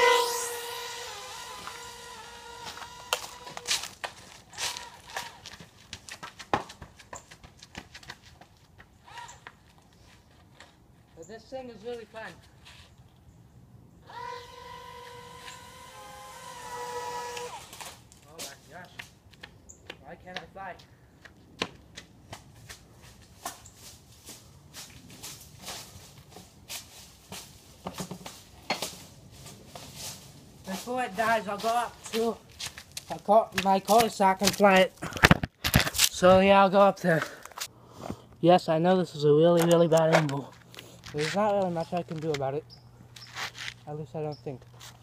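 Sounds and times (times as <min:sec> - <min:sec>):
running footsteps on driveway: 0:02.6 - 0:11.2, 0:18.8 - 0:37.7, 0:39.9 - 0:43.9.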